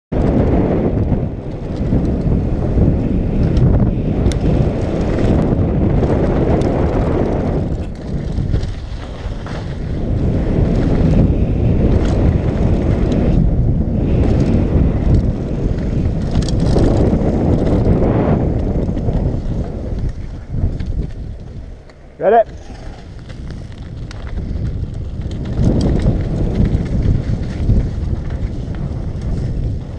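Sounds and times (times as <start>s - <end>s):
wind rushing over microphone: 0.1s - 29.9s
bike tyres on dirt: 0.2s - 29.9s.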